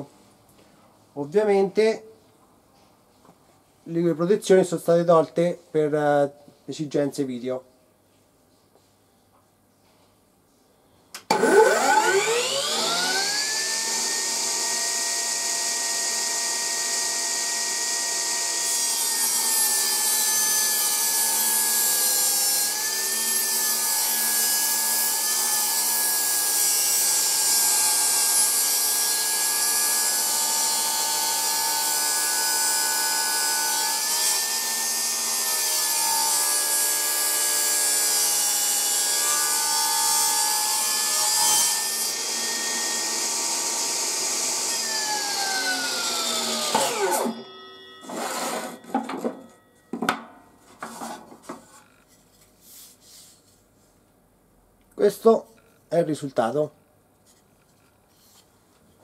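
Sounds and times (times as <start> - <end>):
table saw whining: 11.2 - 50.2
saw blade ripping wood: 11.3 - 47.4, 48.0 - 49.3.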